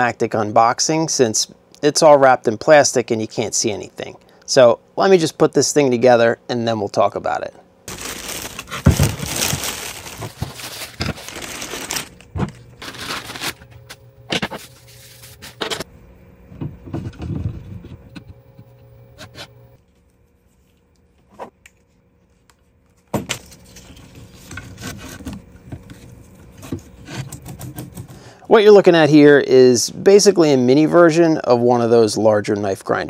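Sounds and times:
plastic packaging crinkling: 7.9 - 15.8.

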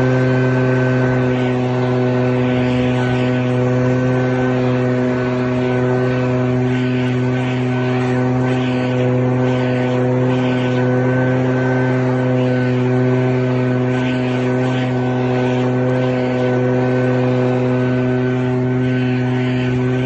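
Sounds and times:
leaf blower engine drone: 0.0 - 20.0.

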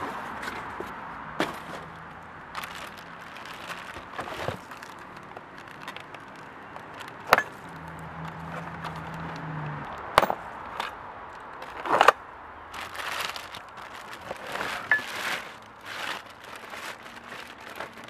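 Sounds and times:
plastic wrapping crinkling: 1.4 - 9.5, 12.7 - 18.0.

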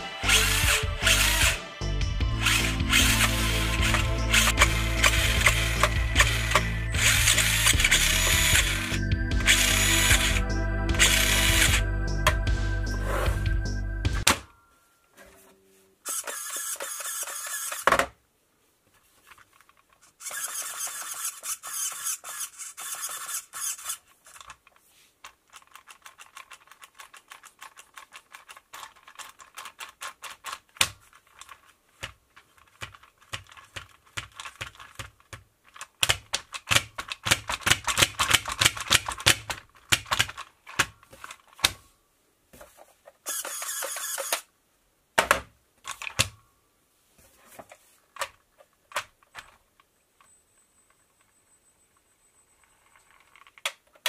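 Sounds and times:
steady whir: 2.2 - 11.9.

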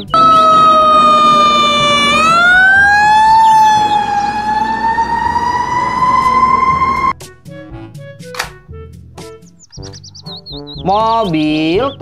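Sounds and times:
low rumble of street noise: 0.0 - 7.1
fire truck siren wailing: 0.0 - 7.2.

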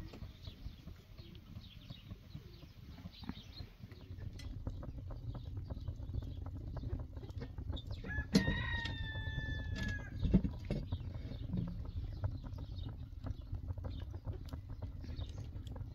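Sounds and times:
low rumble: 0.0 - 15.9
wood fire crackling: 0.0 - 15.9
rooster crowing: 8.1 - 10.2.

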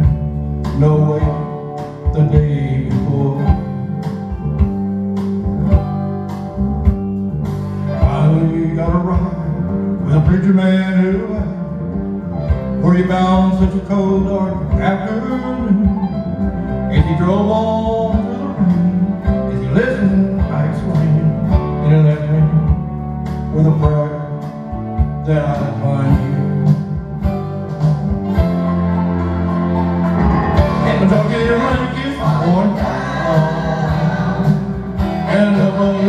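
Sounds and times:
man singing: 0.0 - 4.4, 8.0 - 12.0, 12.7 - 26.8, 30.6 - 36.0
country backing track with guitar: 0.0 - 36.0.

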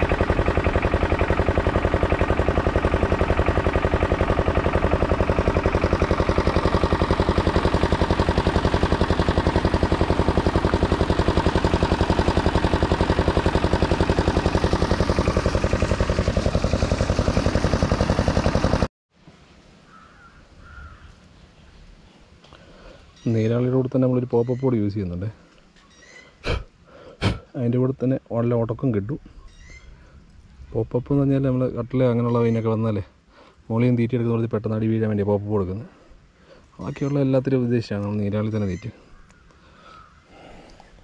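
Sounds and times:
engine running: 0.0 - 18.9.

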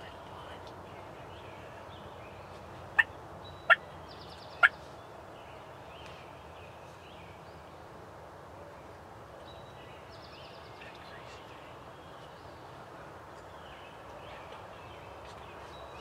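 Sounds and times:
small birds chirping: 0.0 - 7.7, 9.4 - 16.0
wild turkeys calling: 2.9 - 3.8, 4.6 - 4.8.

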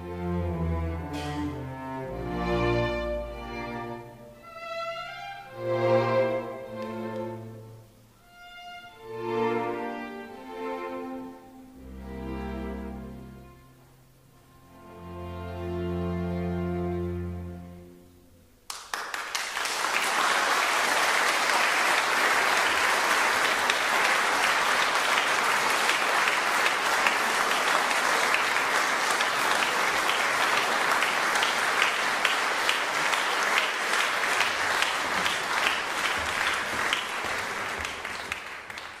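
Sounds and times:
audience applause: 18.7 - 39.0.

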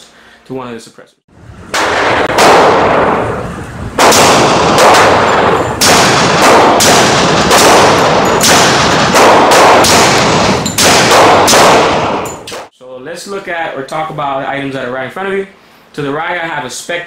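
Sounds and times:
suppressed pistol shots: 1.7 - 3.4, 4.0 - 12.7.

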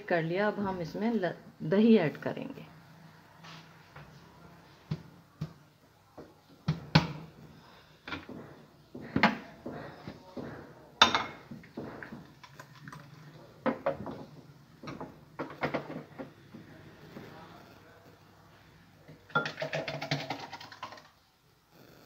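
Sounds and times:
glass bowls clinking: 19.3 - 19.9.

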